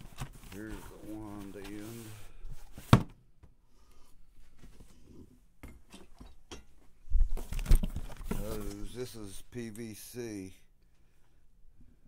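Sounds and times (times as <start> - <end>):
cardboard scraping and rustling: 0.0 - 3.1, 7.4 - 9.1.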